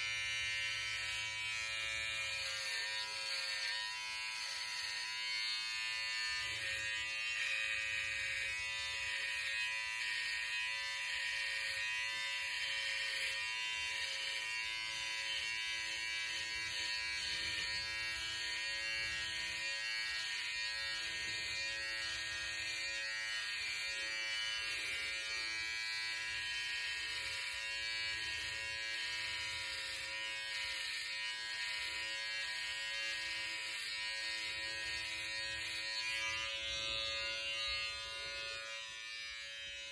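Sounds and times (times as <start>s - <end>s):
electric hair clipper buzzing: 0.0s - 39.9s.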